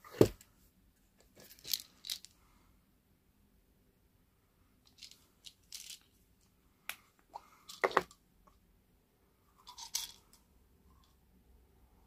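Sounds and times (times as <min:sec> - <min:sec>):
objects clicking and rustling: 0:01.3 - 0:02.4, 0:04.9 - 0:06.2, 0:07.6 - 0:08.2, 0:09.6 - 0:10.5.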